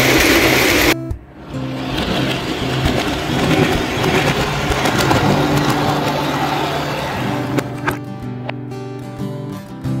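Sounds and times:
model train wheels rolling on rails: 0.0 - 7.8.

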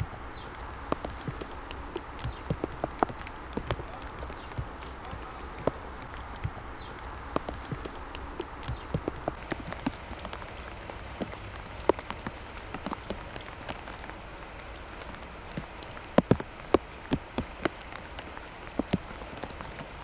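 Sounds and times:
heavy rain: 0.0 - 20.0
raindrops tapping: 0.0 - 20.0.

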